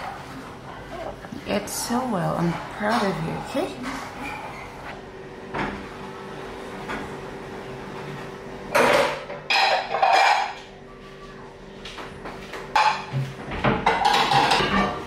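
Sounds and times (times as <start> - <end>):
dishes clattering in a sink: 8.7 - 10.7, 11.9 - 15.0.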